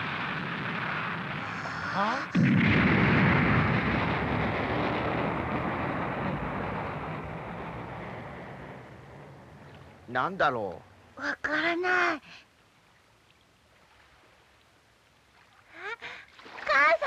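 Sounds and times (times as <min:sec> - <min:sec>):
loud rocket blast: 0:00.0 - 0:09.7
noisy rumble: 0:00.0 - 0:11.4.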